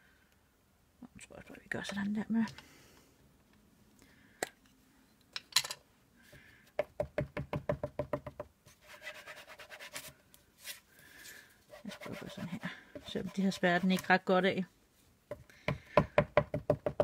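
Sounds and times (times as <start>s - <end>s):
soft scratchy rubbing: 11.7s - 14.2s.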